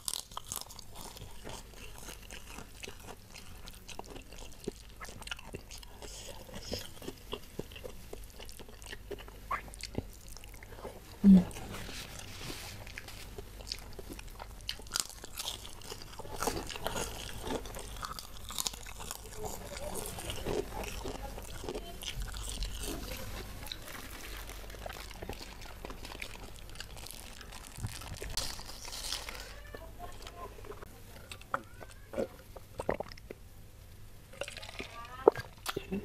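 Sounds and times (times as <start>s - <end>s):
close chewing and smacking: 0.0s - 33.5s, 34.3s - 36.0s
plastic bag crinkling: 19.1s - 30.8s.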